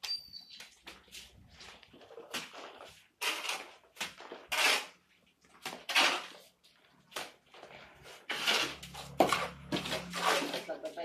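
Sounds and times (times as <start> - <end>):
trowel scraping mortar: 1.1 - 11.0
mortar slapping onto wall: 2.2 - 6.5.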